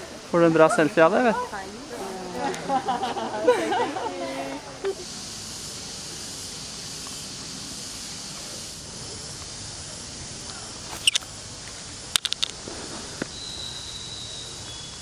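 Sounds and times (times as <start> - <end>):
high-pitched forest hiss: 0.0 - 15.0
sharp clicks: 12.1 - 12.6.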